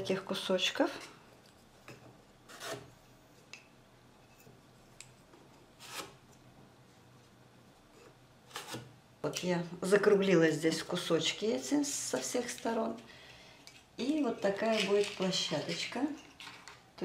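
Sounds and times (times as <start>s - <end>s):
gypsum board rasping scrapes: 2.5s - 2.9s.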